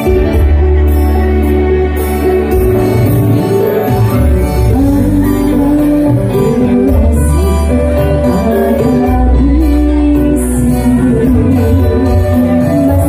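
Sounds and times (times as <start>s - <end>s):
bass guitar: 0.0s - 13.0s
electric guitar: 0.0s - 13.0s
electronic keyboard: 0.0s - 13.0s
woman singing into a microphone: 2.9s - 13.0s.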